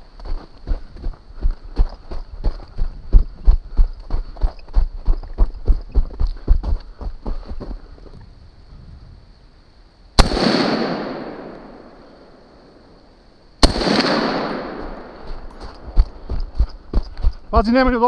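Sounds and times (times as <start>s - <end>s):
gunshots with echo: 10.2s - 12.3s, 13.6s - 15.4s.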